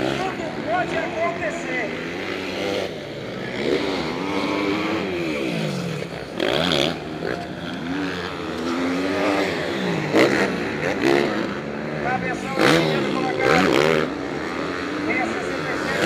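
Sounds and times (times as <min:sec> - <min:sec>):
motocross bike engines revving: 0:00.0 - 0:16.0.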